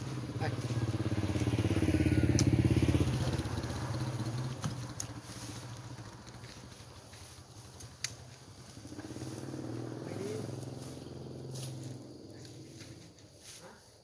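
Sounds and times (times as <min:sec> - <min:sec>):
scooter engine passing: 0:00.0 - 0:13.9
sharp clicks: 0:07.8 - 0:08.3.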